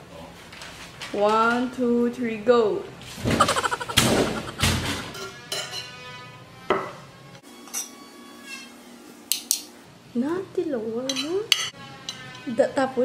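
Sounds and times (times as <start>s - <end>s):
metal spoon clinking on ceramic plates: 5.2s - 5.9s, 11.1s - 12.3s.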